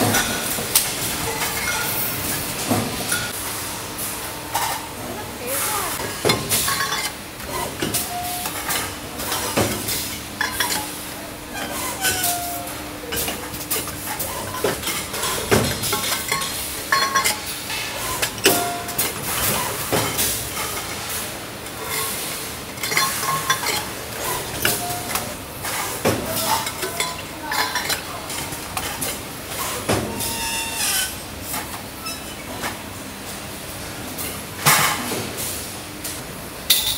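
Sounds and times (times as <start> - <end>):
factory background noise: 0.0 - 36.9
metal bottles clinking and knocking: 6.3 - 7.2, 7.8 - 10.9, 11.6 - 17.5, 22.8 - 25.2, 26.2 - 29.1.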